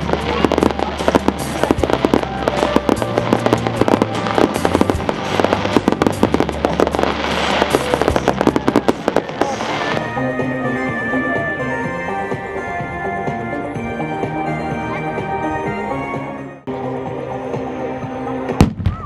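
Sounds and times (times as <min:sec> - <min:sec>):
fireworks bursting and crackling: 0:00.0 - 0:13.5, 0:18.1 - 0:19.0
background music: 0:00.0 - 0:19.0.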